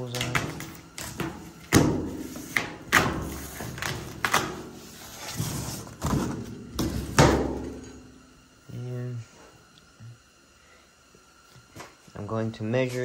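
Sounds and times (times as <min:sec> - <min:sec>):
cardboard knocking and scraping on metal: 0:05.2 - 0:07.8.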